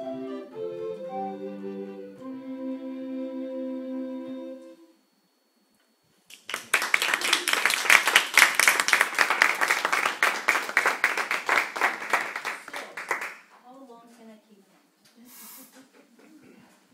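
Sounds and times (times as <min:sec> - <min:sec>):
recorder ensemble chord: 0:00.0 - 0:05.0
audience applause: 0:06.3 - 0:13.4.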